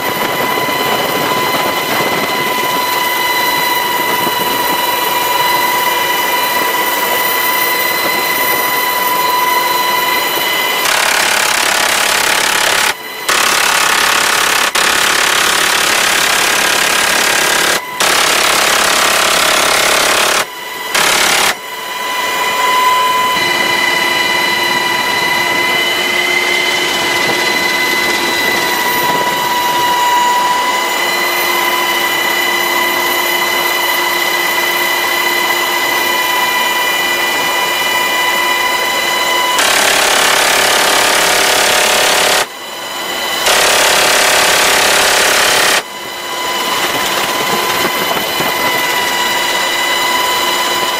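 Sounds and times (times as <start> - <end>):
helicopter cabin whine: 0.0 - 50.9
rotary machine gun bursts: 10.7 - 21.6, 39.3 - 42.6, 43.3 - 49.0.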